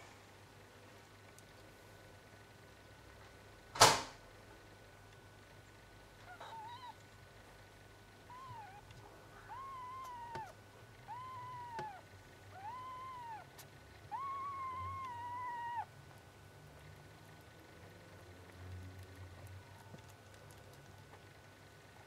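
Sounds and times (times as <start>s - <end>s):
kitten mewing: 6.2s - 7.0s, 8.3s - 15.9s.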